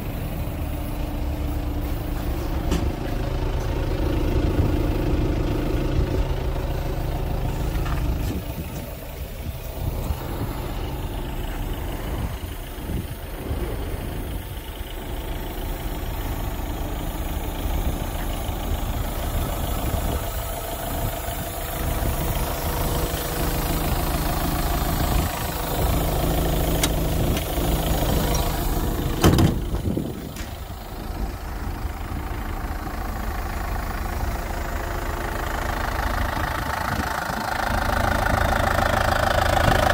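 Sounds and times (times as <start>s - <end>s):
diesel engine idling: 0.0s - 39.9s.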